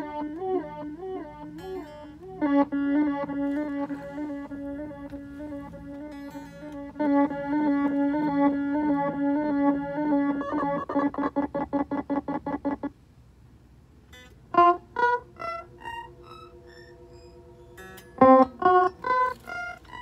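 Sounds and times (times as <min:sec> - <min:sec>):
instrument notes with echo repeats: 0:00.0 - 0:12.9, 0:14.1 - 0:20.0
soft held tone: 0:14.1 - 0:20.0.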